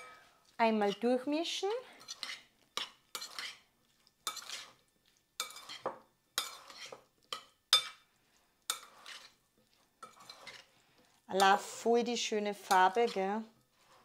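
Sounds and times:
utensil scraping against bowl: 0.0s - 1.2s, 1.9s - 4.8s, 5.4s - 8.0s, 8.6s - 11.9s, 12.6s - 14.0s.

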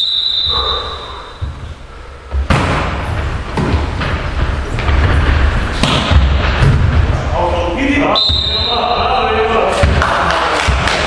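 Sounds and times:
referee's whistle blast: 0.0s - 1.1s, 8.2s - 8.8s
volleyball hits echoing: 2.3s - 7.2s, 9.7s - 11.0s.

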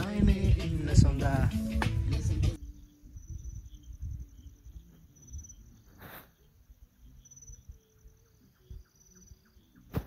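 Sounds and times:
wind rumble on microphone: 0.0s - 5.6s
faint insects chirring: 2.6s - 10.0s.

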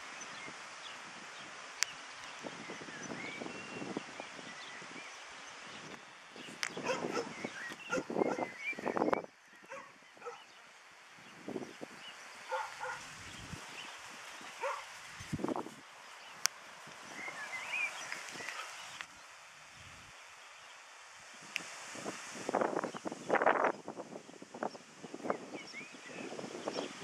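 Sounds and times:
dogs barking: 6.8s - 8.6s, 9.6s - 10.5s, 12.5s - 13.1s, 14.6s - 14.9s.

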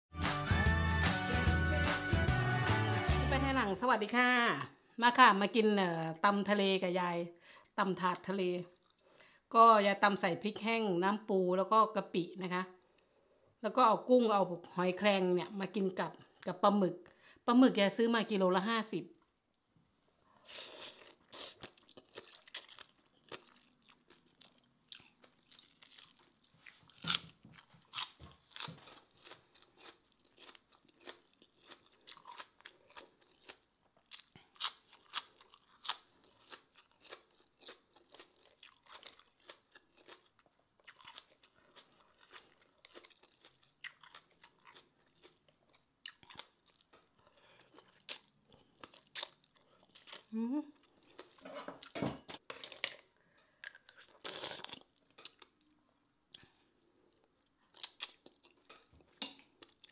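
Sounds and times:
person chewing and crunching: 20.5s - 51.9s, 52.5s - 55.7s, 56.3s - 59.9s.

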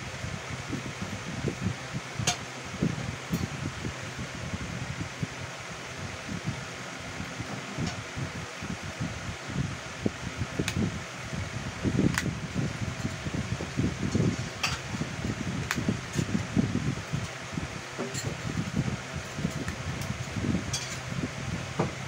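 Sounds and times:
gusty low rumble: 0.0s - 22.0s.

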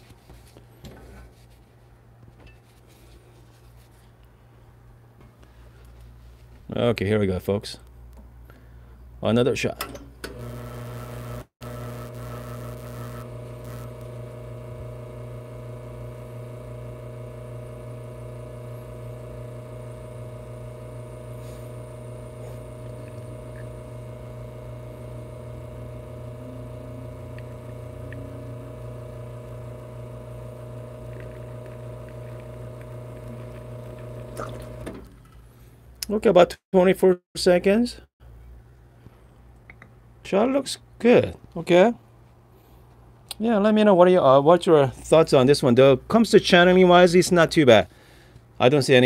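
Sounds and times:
espresso machine pump humming: 10.3s - 35.0s.

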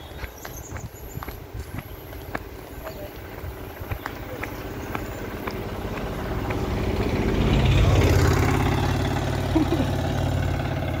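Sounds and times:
auto-rickshaw engine passing: 2.4s - 11.0s.

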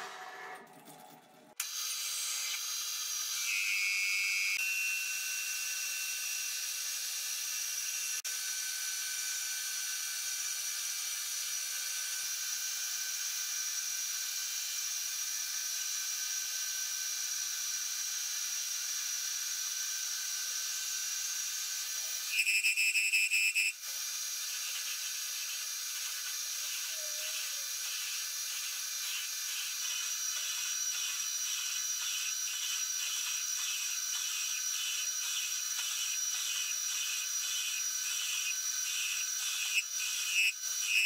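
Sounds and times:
metal lathe whining: 24.4s - 41.0s.

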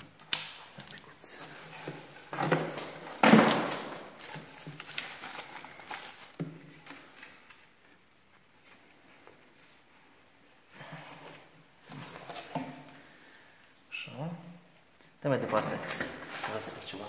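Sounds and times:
plastic wrapping crinkling: 0.0s - 7.8s.

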